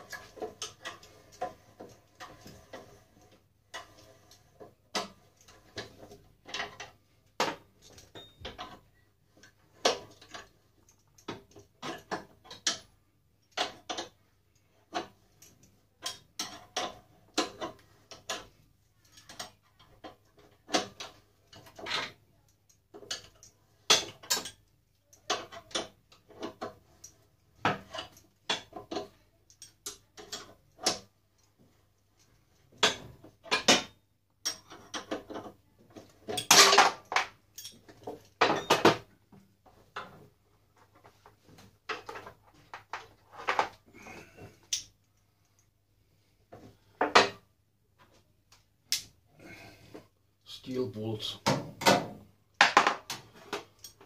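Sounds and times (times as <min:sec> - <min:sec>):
spanners clinking on metal: 0:36.3 - 0:38.9.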